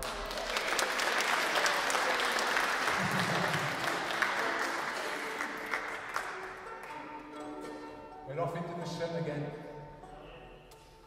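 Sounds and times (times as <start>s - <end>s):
audience clapping: 0.0s - 7.8s.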